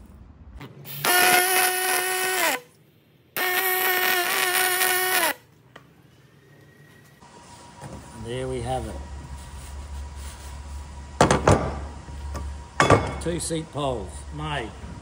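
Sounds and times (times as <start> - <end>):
welding arc buzzing: 0.9 - 2.8, 3.4 - 5.5.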